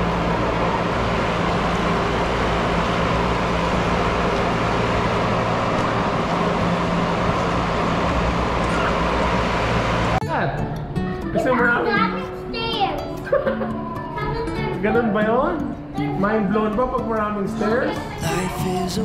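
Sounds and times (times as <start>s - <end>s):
low engine hum: 0.0s - 10.2s
road noise rushing: 0.0s - 10.2s.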